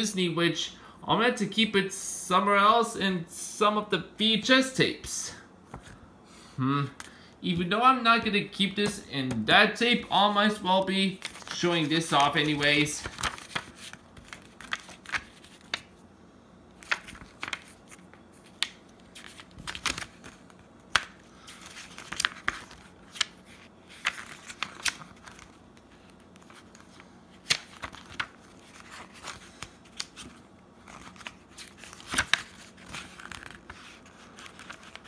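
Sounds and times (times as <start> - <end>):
paper pages turning: 8.2 - 16.0, 16.8 - 35.0.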